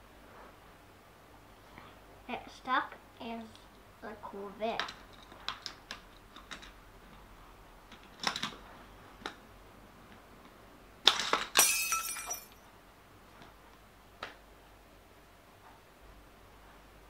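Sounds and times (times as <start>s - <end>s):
toy car crashing impact: 11.0s - 12.6s.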